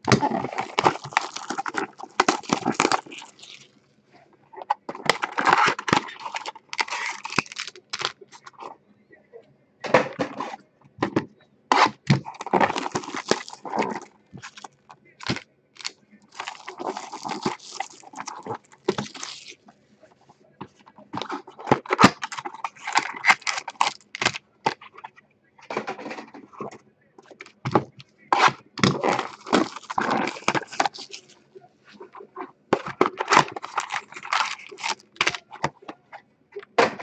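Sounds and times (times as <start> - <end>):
cellophane crinkling and tearing: 0.1 - 3.8, 5.0 - 8.6, 11.7 - 19.6, 21.2 - 25.0, 28.4 - 31.4, 32.0 - 35.8.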